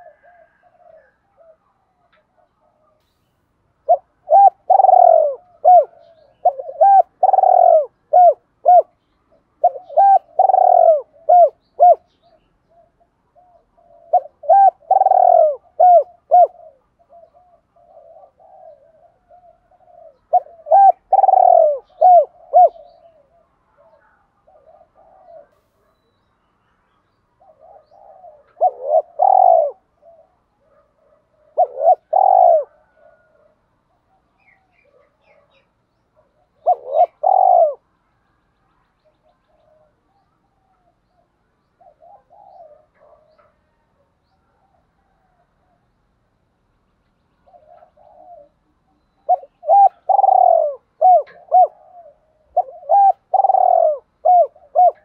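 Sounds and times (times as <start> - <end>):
dove cooing: 0.0 - 3.0, 3.8 - 26.0, 27.4 - 37.9, 38.5 - 45.9, 47.4 - 55.0.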